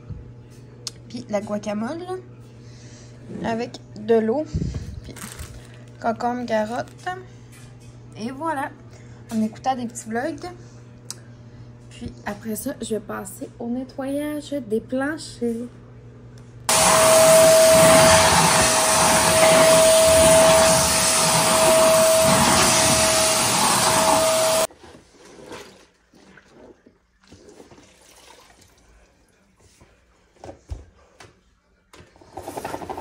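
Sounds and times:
vacuum cleaner running: 16.7s - 24.7s.

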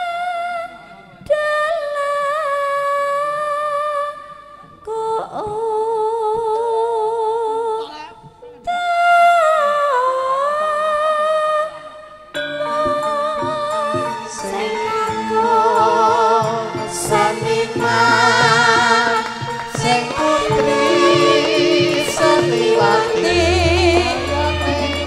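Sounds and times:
woman singing high held notes: 12.4s - 25.0s.

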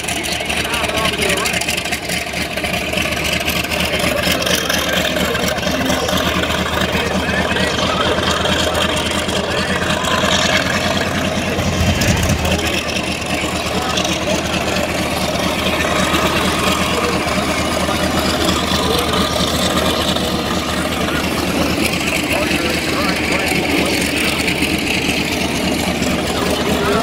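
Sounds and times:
helicopter in low flight: 0.0s - 27.0s.

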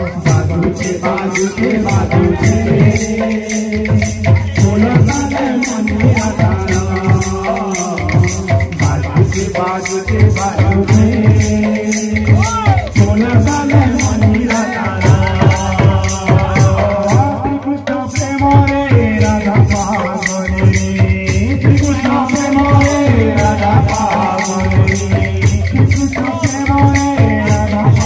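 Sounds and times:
barrel drums beating: 0.0s - 17.5s
voices singing: 0.0s - 28.0s.

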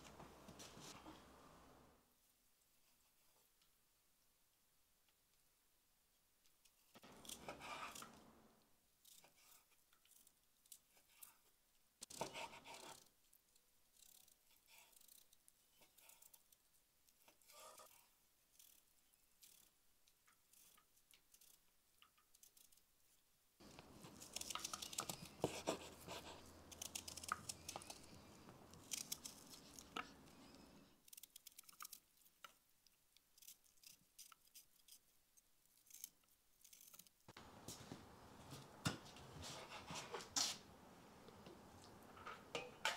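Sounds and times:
knife cutting onion crunching: 23.6s - 32.5s.

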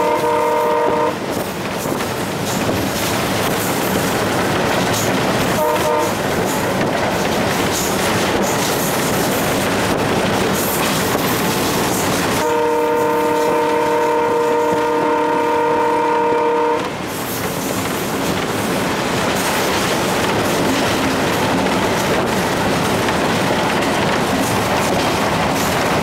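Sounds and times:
locomotive horn blast: 0.0s - 1.2s, 5.6s - 6.2s, 12.4s - 17.0s
wheels on rails: 16.8s - 26.0s.

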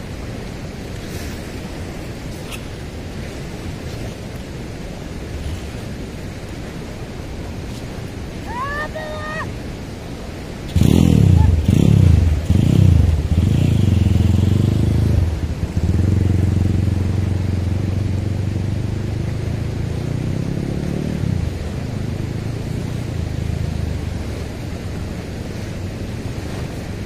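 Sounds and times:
steady rush of noise: 0.0s - 27.0s
engine humming: 10.6s - 27.0s.

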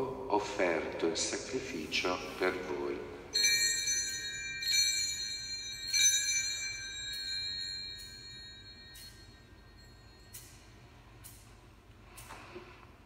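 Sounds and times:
altar bells ringing: 3.3s - 11.5s.

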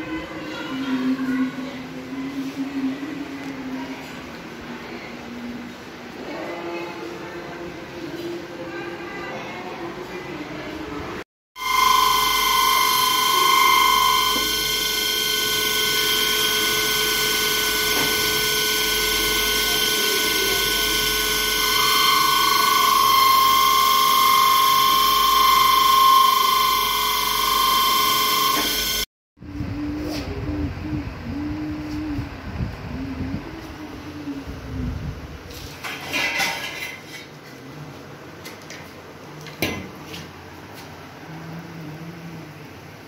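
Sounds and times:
polishing wheel whining: 11.6s - 29.1s.

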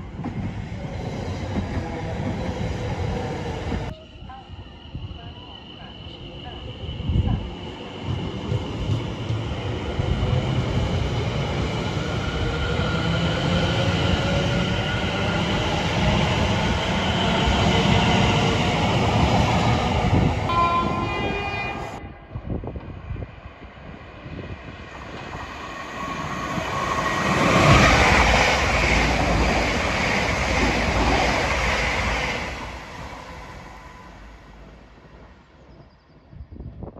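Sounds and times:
train rushing past on rails: 0.0s - 35.8s
train horn: 20.5s - 22.3s
train wheels rumbling: 24.5s - 35.9s.

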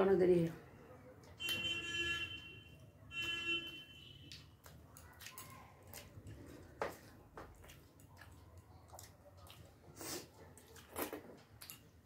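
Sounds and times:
chewing and lip smacks: 4.2s - 12.0s.

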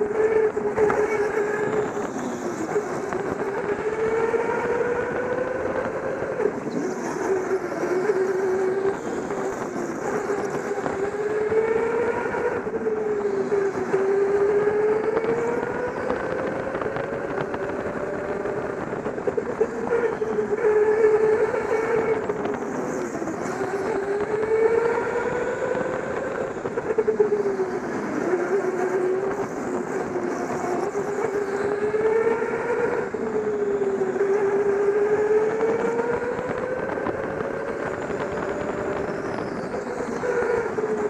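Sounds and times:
go-kart motor whining: 0.0s - 41.0s.

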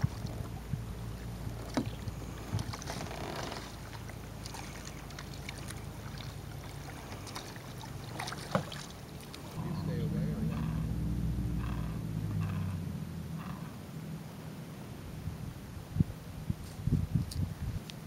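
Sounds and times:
kayak paddle dipping and dripping: 0.0s - 9.6s
soft splashes and clicks: 0.0s - 9.6s
low steady rumble: 0.0s - 17.9s.

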